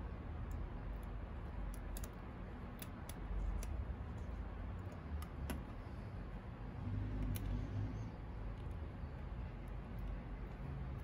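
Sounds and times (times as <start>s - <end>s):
low steady rumble: 0.0s - 11.0s
small clicks and taps of handling: 0.4s - 2.2s.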